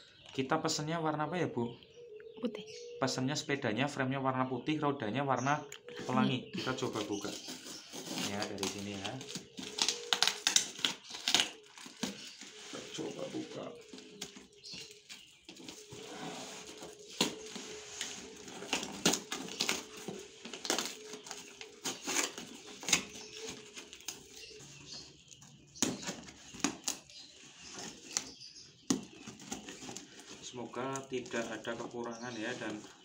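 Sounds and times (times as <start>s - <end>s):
cardboard scraping and rustling: 6.9s - 28.3s
packing tape ripping: 7.0s - 12.6s, 18.2s - 24.4s.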